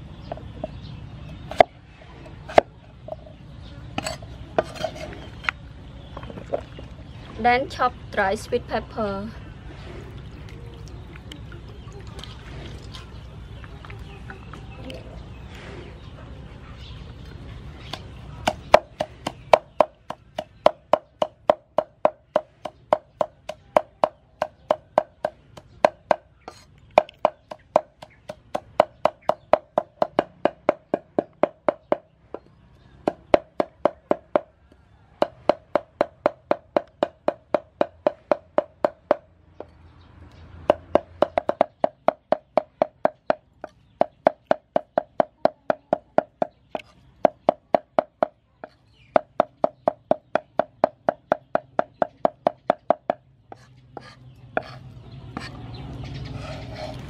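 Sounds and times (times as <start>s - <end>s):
cleaver chopping on wooden board: 17.9s - 32.0s, 35.2s - 39.2s, 40.7s - 54.8s.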